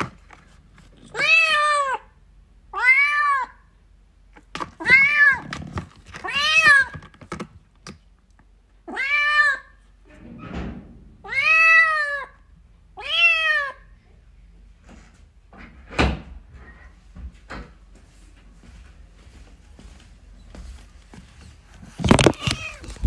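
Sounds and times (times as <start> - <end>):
thump: 10.2 - 11.1.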